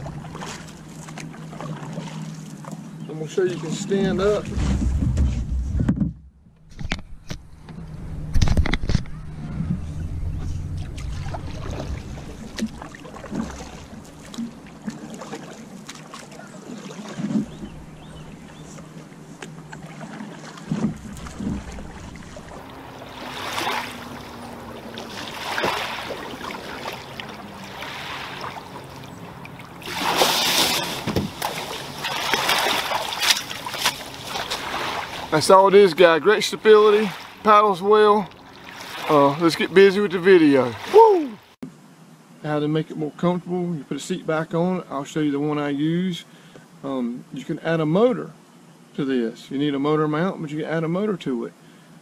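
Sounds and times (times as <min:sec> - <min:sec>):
paddle strokes in water: 0:00.0 - 0:05.8, 0:10.4 - 0:41.6
person stepping into shallow water: 0:10.8 - 0:17.8, 0:18.4 - 0:35.4.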